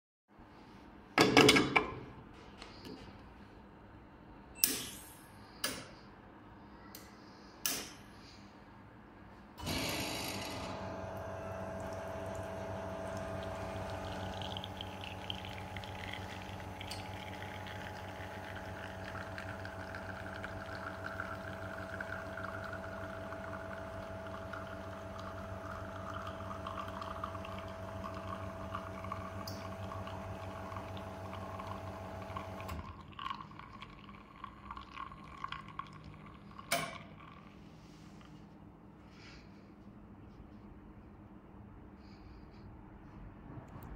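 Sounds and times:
espresso machine pump humming: 9.6s - 37.5s
coffee pouring into cups: 10.7s - 38.3s
coffee dripping: 11.2s - 37.7s.

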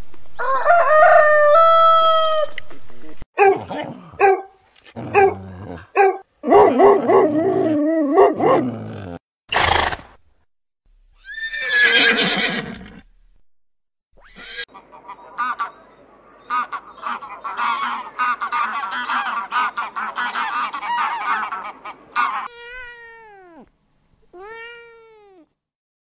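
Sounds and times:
rooster crowing: 0.4s - 2.6s
dog whining and howling: 6.0s - 9.2s
horse whinnying: 11.2s - 13.1s, 14.2s - 14.7s.

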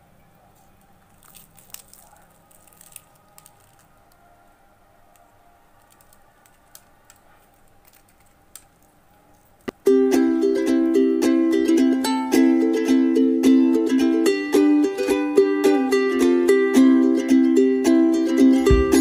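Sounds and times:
crisp pastry crackling: 0.5s - 9.8s.

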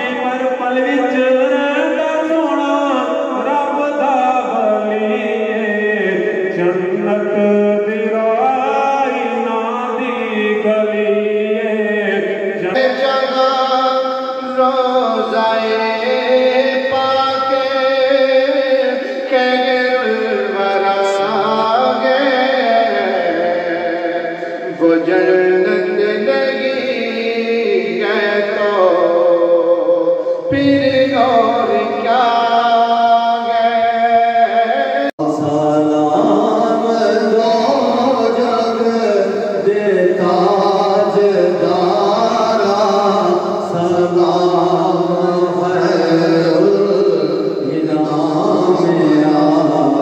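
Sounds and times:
man singing devotional melody: 0.0s - 50.0s.

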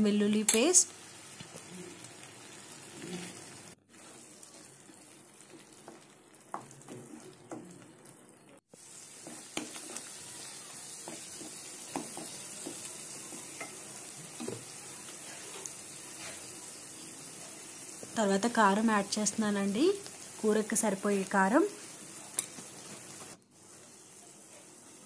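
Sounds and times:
paste sizzling in a pan: 0.4s - 25.0s
wooden spatula scraping: 2.9s - 7.7s, 14.4s - 16.6s.

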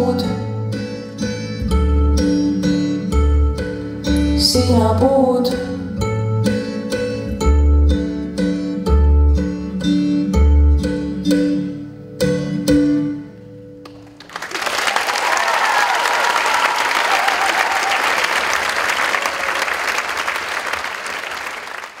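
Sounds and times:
plucked-string dance music: 0.0s - 14.2s
audience applause: 14.0s - 22.0s.

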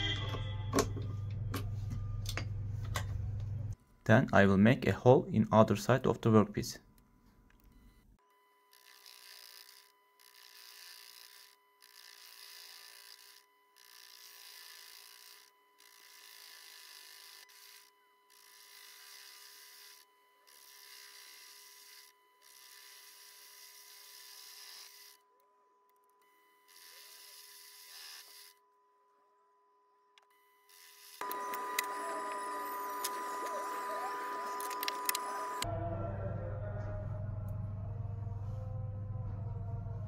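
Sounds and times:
lathe whine: 8.7s - 25.2s, 30.7s - 35.7s
drill scraping hiss: 26.7s - 28.5s.

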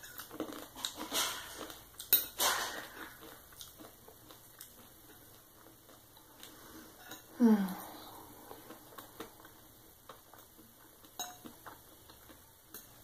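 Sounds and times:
cutlery clinking on ceramic plate: 0.0s - 3.0s, 11.2s - 11.6s.

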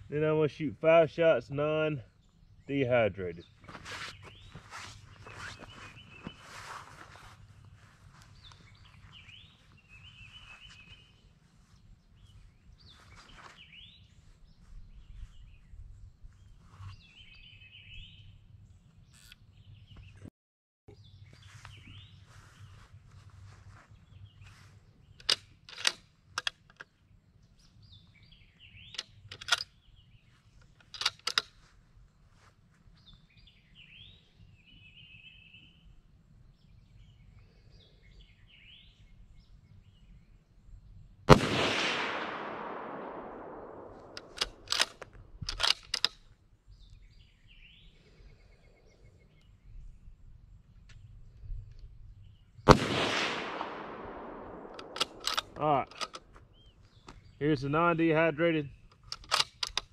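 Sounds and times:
rifle bolt clicks: 25.2s - 26.9s, 28.9s - 29.7s, 30.8s - 31.6s, 41.5s - 46.2s, 52.7s - 56.3s, 58.9s - 59.9s
rifle shot with echo: 41.3s - 45.0s, 52.7s - 56.0s
faint bird chirps: 46.7s - 52.6s.

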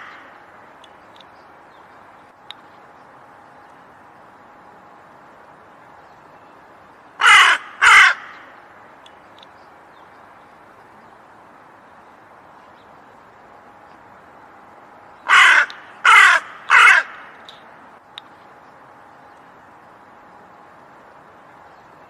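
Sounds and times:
crow cawing: 7.2s - 8.5s, 15.2s - 17.4s.

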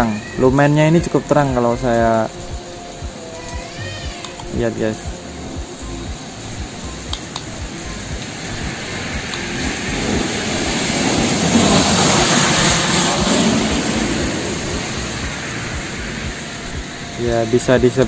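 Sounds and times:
heavy rain on a wet road: 0.1s - 18.0s
low rumble: 4.5s - 18.0s.

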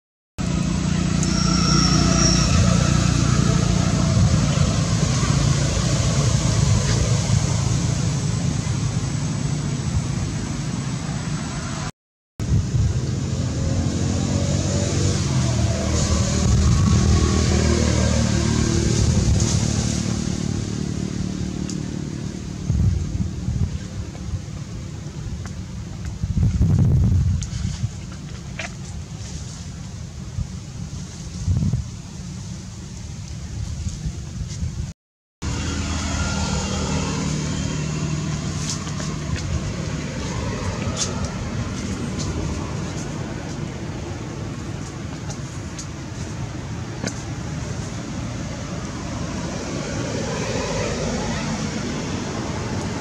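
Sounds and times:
vehicle engine passing: 0.4s - 25.1s, 35.4s - 53.0s
wind rumble on microphone: 0.4s - 53.0s.

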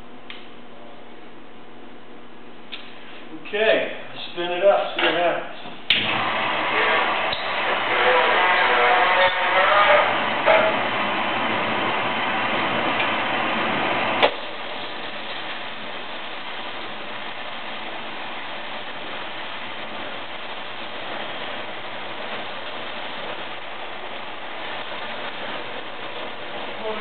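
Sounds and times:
tire truing machine running: 5.9s - 27.0s.

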